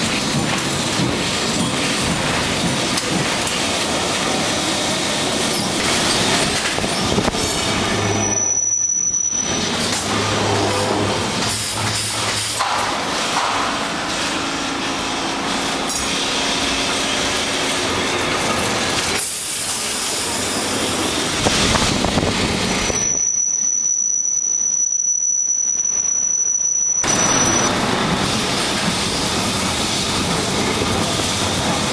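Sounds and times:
tram wheels rattling on track: 0.0 - 31.9.

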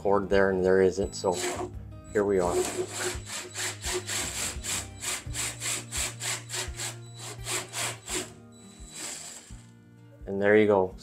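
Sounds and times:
drill rasping through siding: 1.2 - 9.7.

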